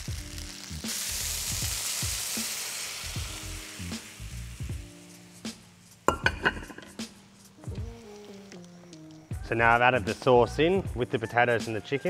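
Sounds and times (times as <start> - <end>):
food sizzling in a frying pan: 0.0 - 9.2
sauce pouring: 0.9 - 5.3, 7.6 - 9.2.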